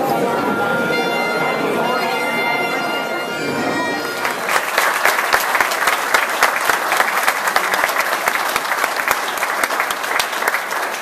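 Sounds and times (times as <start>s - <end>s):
audience applauding: 4.0s - 11.0s
close loud claps: 4.2s - 11.0s.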